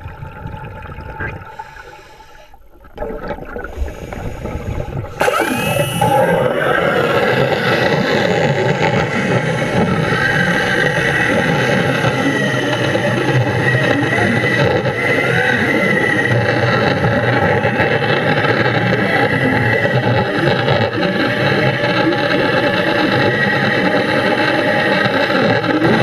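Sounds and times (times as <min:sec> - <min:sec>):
pneumatic cutting disc whining: 0:03.9 - 0:12.8.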